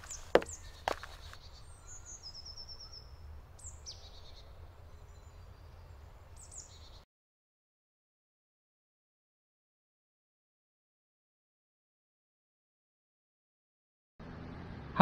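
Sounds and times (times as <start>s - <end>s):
falling bird call: 0.0s - 2.5s
bird chirps: 0.0s - 7.0s
bird trill: 0.0s - 7.0s.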